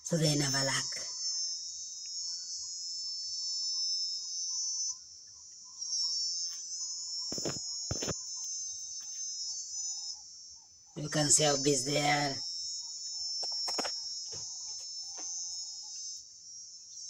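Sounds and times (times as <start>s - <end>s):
insects trilling: 0.0s - 17.0s.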